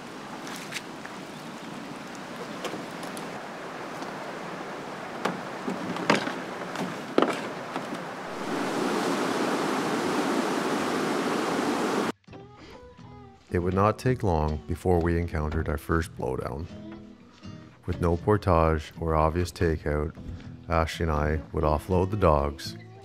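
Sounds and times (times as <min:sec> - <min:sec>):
flowing river water: 0:00.0 - 0:12.1
rapids pouring over a log: 0:00.0 - 0:12.1.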